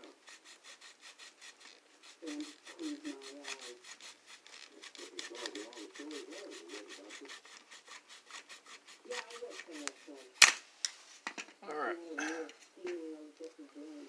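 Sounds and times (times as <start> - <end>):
hand saw cutting plastic: 0.0 - 10.5.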